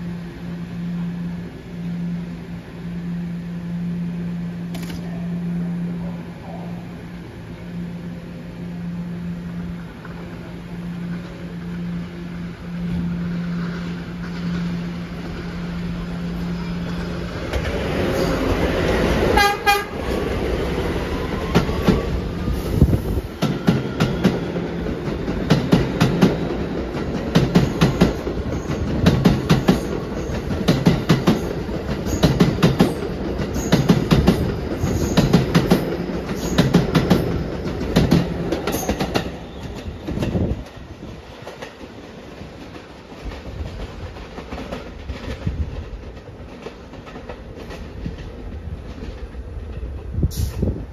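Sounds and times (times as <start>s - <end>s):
train motor tone: 0.0s - 26.2s
train horn blast: 19.3s - 20.2s
wheels clicking over rail joints: 23.4s - 50.6s.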